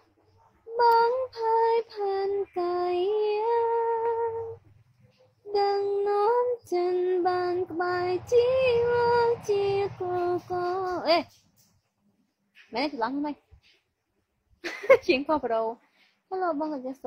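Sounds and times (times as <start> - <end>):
high voice singing: 5.5 - 11.4.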